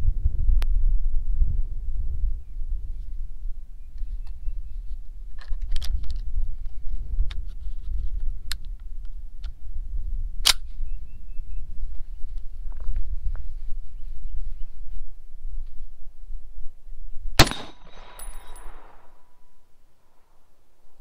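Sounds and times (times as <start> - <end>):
wind rumble on microphone: 0.0 - 21.0
rifle loading clicks and clacks: 5.4 - 6.3, 10.4 - 10.6
sharp metallic snap: 17.4 - 19.2.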